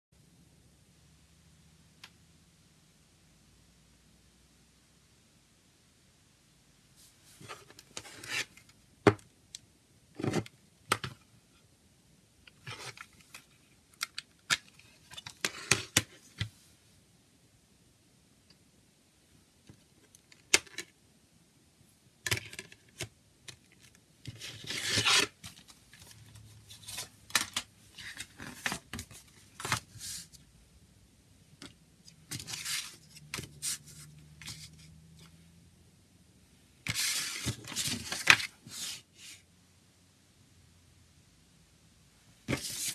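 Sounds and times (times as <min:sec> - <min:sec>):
paper booklet rustling: 0:24.3 - 0:30.4, 0:32.2 - 0:34.8, 0:36.9 - 0:39.0, 0:42.5 - 0:42.9.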